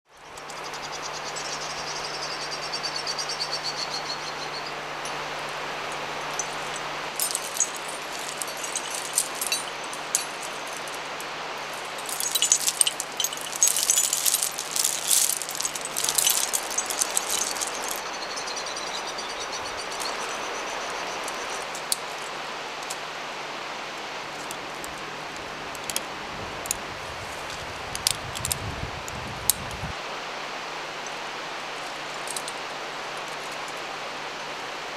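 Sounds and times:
steady outdoor hiss: 0.0s - 34.9s
bird trill: 0.2s - 5.1s, 12.0s - 21.8s
metal climbing gear jangling: 6.0s - 18.0s, 25.7s - 26.8s, 27.5s - 28.6s, 31.8s - 32.6s.

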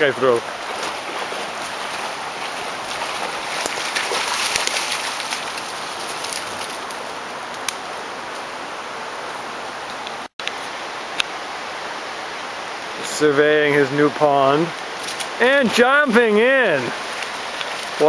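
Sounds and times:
floodwater rushing: 0.0s - 18.0s
dog splashing through water: 0.4s - 6.8s.

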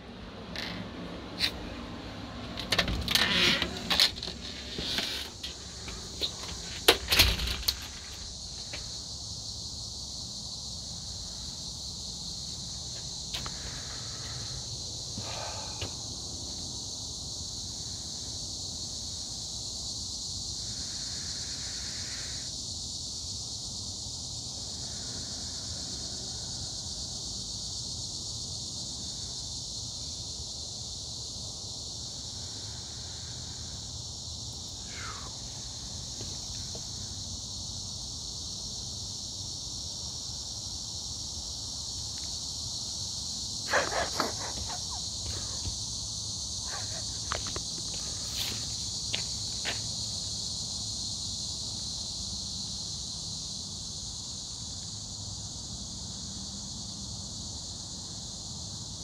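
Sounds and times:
insects singing: 0.0s - 59.0s
rustles: 2.5s - 9.0s, 43.7s - 49.9s.

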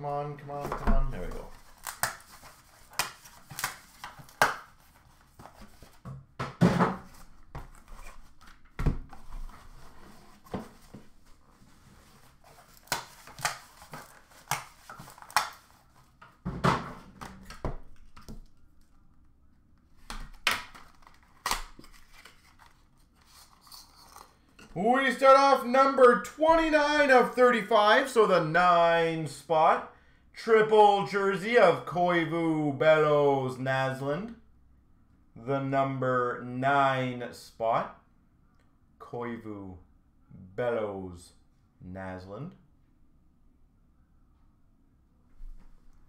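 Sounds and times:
packaging rustling: 1.3s - 6.0s, 7.0s - 16.2s, 20.0s - 24.3s.

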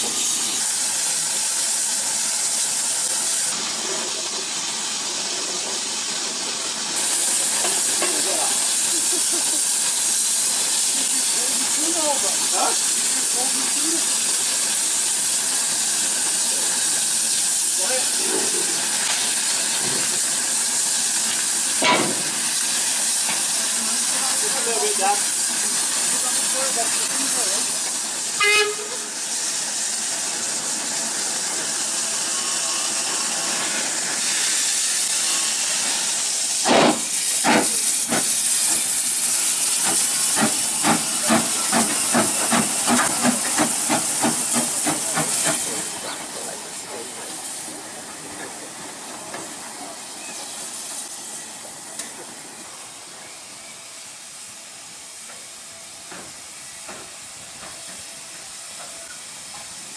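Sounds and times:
steam locomotive hissing: 0.0s - 59.9s
locomotive exhaust chuffs: 14.2s - 54.2s.

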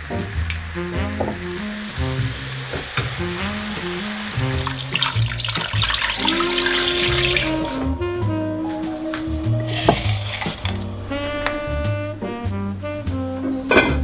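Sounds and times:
background music with melody: 0.0s - 14.0s
water pouring into a pot: 0.1s - 8.0s, 9.5s - 11.2s.

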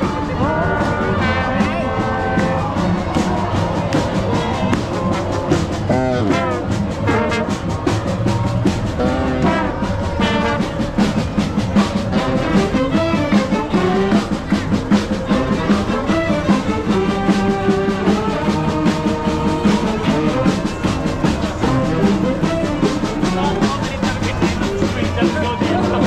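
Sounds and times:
brass instruments music: 0.0s - 26.0s
fast drum beat: 0.0s - 26.0s.

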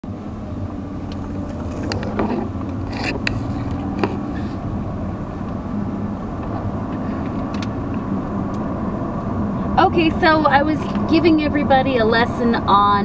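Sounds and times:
car engine and tyre rumble: 0.0s - 13.0s
sharp clicks or rattles: 7.2s - 8.6s.

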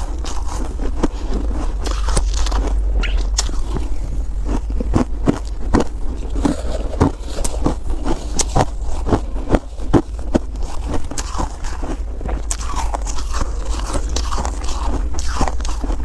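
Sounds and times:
ice being chewed: 0.0s - 16.0s
low rumble: 0.0s - 16.0s
metal spoon scraping ice: 6.1s - 16.0s.

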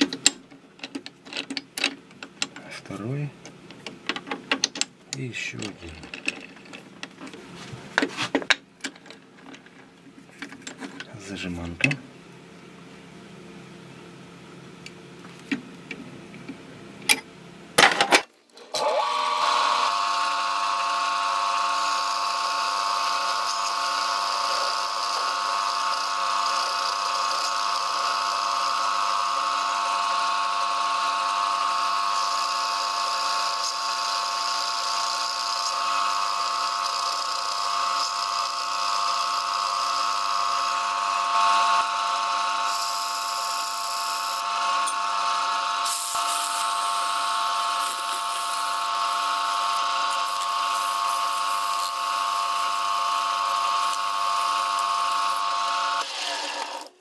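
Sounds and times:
lathe whining: 18.6s - 57.0s
sandpaper hissing on spinning disc: 45.8s - 55.7s.

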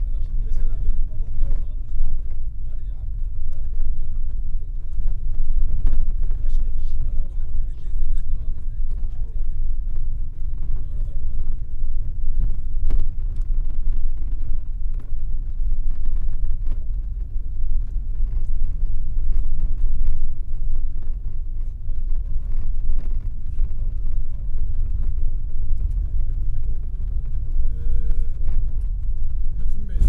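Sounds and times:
car engine and tyres rumbling: 0.0s - 30.0s
gravel clicks: 0.0s - 30.0s.

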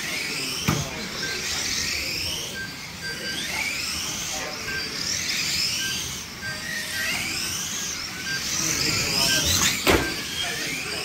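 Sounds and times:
rc car motors whining: 0.0s - 11.0s.

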